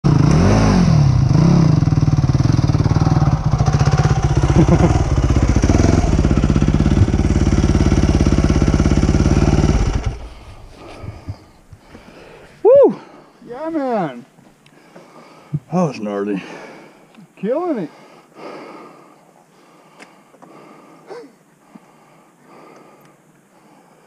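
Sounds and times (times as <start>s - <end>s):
dirt bike engine idling: 0.1s - 12.0s.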